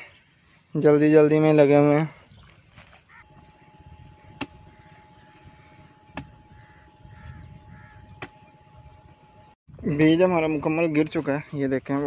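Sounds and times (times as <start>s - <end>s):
hand hoe chopping soil: 6.1s - 6.4s.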